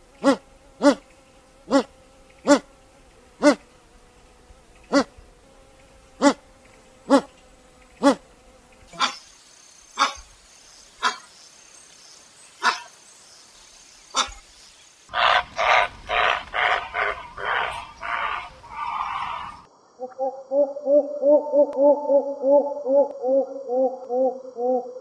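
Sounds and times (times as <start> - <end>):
heron barking calls: 0.2 - 1.0, 1.7 - 2.7, 4.9 - 5.1, 9.0 - 9.2, 10.0 - 10.3, 11.0 - 11.3, 12.6 - 12.9, 14.1 - 14.4, 15.1 - 19.7.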